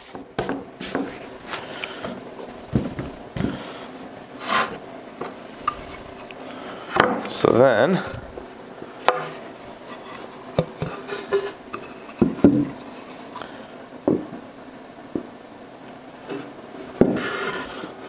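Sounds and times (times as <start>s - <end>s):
wood sliding on workbench: 0.0s - 3.8s, 4.4s - 6.3s, 16.3s - 18.0s
wooden boards knocking on workbench: 2.0s - 3.6s, 7.0s - 7.3s, 9.1s - 9.3s, 12.2s - 12.8s, 14.0s - 14.4s, 17.0s - 17.3s.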